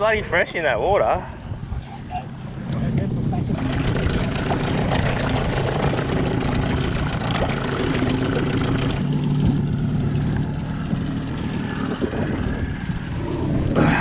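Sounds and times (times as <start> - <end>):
rushing wind and water: 1.3 - 10.2
boat engine hum: 2.4 - 14.0.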